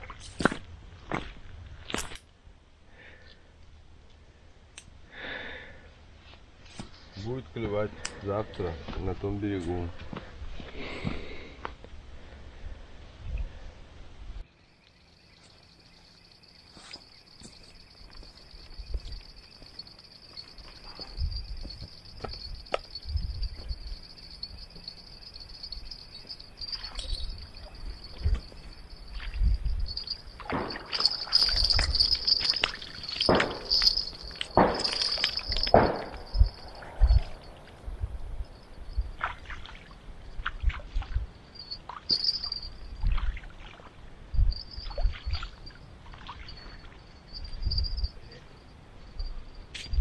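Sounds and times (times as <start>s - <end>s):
insects chirring: 14.5s - 40.5s, 41.3s - 43.2s, 44.3s - 50.0s
river water lapping and splashing: 39.2s - 41.2s, 43.0s - 44.2s, 44.8s - 47.1s.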